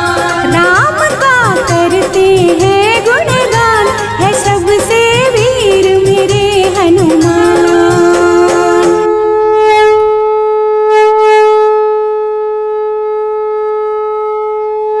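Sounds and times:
singing with percussion: 0.0s - 9.2s
conch shell blown: 7.2s - 15.0s.

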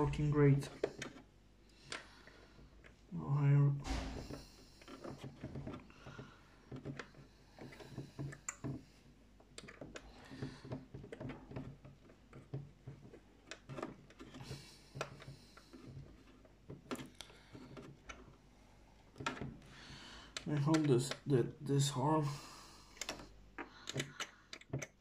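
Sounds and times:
clicks and taps of plastic parts: 4.0s - 18.4s, 19.1s - 21.3s, 22.9s - 25.0s.

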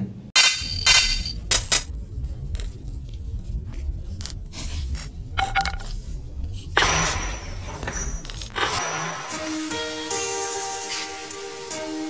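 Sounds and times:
low rumble: 0.4s - 9.4s
loud hit: 0.4s - 9.7s
sharp clicks and crackles: 0.5s - 8.6s.

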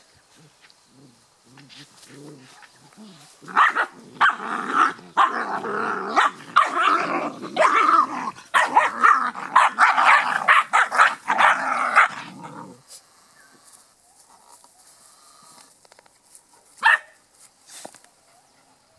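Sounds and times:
puppies growling and yapping: 1.5s - 12.8s.

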